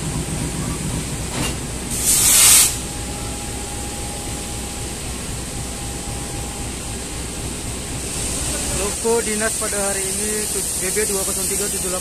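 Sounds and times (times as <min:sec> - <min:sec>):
diesel locomotive idling: 0:00.0 - 0:12.0
even hiss: 0:01.9 - 0:03.0, 0:06.2 - 0:12.0.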